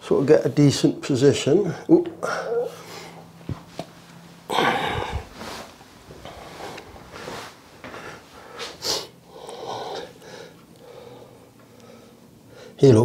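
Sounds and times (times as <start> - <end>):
man breathing: 4.5 - 12.8.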